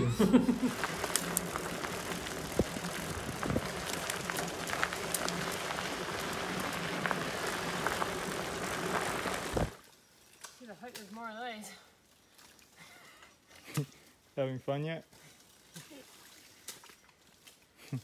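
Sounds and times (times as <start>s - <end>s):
bicycle tyres on dirt road: 0.0s - 18.0s
bike clicks and rattles: 0.6s - 9.8s.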